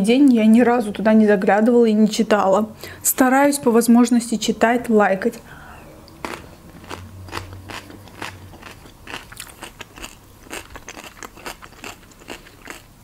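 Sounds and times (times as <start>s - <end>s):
chewing food crunches: 6.1s - 13.0s.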